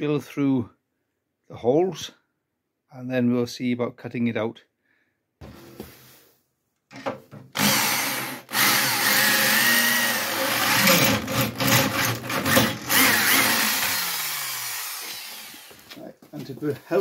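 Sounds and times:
electric drill boring through steel: 7.6 - 15.9.

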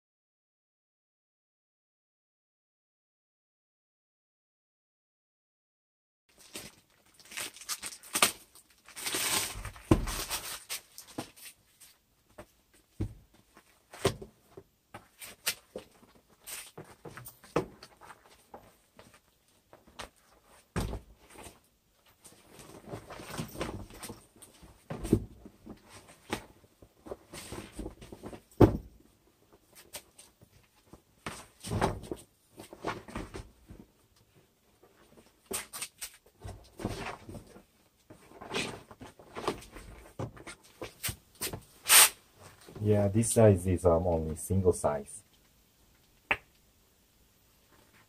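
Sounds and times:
vinyl air mattress rustling and knocking: 24.7 - 29.0.

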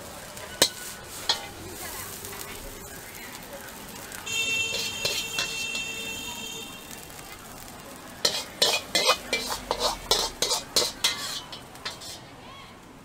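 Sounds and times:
food sizzling in a wok: 0.0 - 13.0
metal ladle scraping and clanking: 0.5 - 1.6, 4.7 - 5.9, 8.2 - 12.3.

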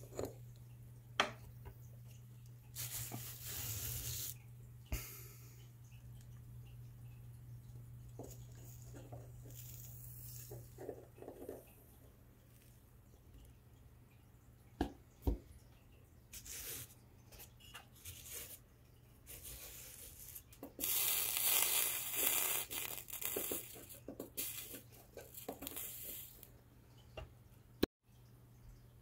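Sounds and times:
solder sizzling and spitting: 2.1 - 7.2, 8.0 - 11.6, 19.2 - 26.6.

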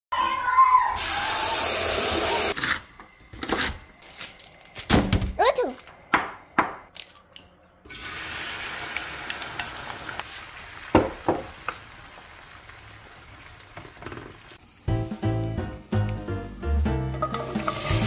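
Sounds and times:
food sizzling in a frying pan: 7.9 - 18.0.

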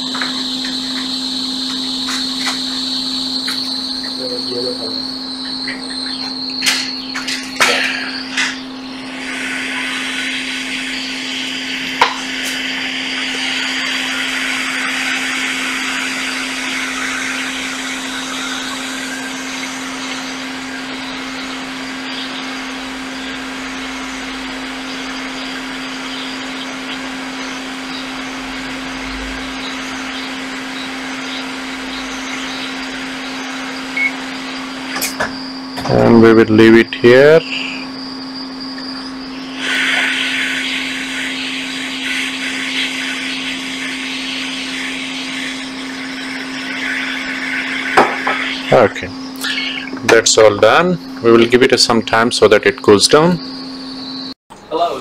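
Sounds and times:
hot-air rework station blowing: 0.0 - 53.4
constant hum: 0.0 - 55.0.

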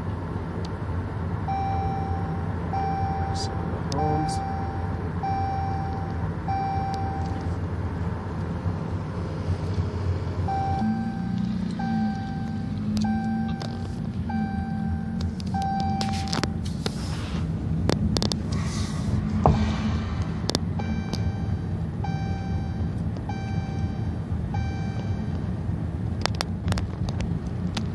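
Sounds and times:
car engine and road drone: 0.0 - 27.9
electronic warning chime: 1.5 - 7.4, 10.5 - 16.6, 20.8 - 25.4
rush of noise: 18.4 - 21.4.

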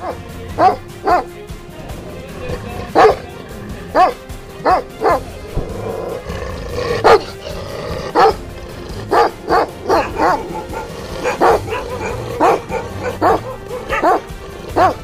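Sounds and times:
dog barking: 0.0 - 1.3, 2.4 - 3.3, 3.9 - 15.0
music: 0.0 - 15.0.

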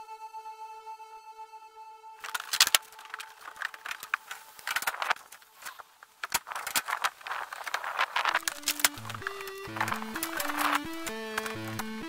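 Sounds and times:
background music: 0.0 - 5.6, 8.4 - 12.0.

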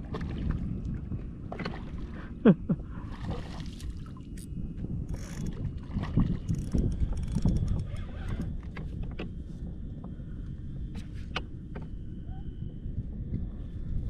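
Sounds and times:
water around kayak: 0.0 - 14.0
wind rumbling on microphone: 0.0 - 14.0
fishing reel clicking: 5.1 - 5.5, 6.4 - 8.5.

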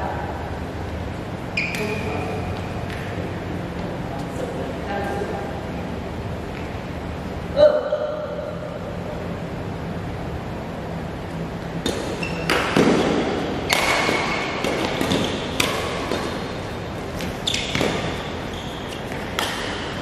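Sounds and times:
badminton racket hitting shuttlecock: 11.9 - 16.6.

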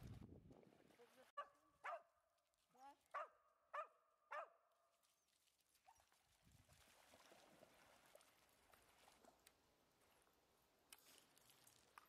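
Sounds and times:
dog barking: 1.4 - 2.1, 3.1 - 4.6
dog splashing through water: 5.4 - 9.6.

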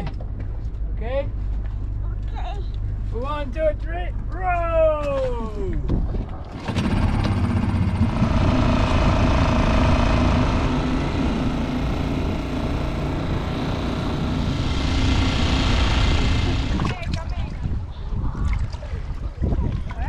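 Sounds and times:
rushing wind: 5.7 - 20.0
outboard motor droning: 6.4 - 17.6.

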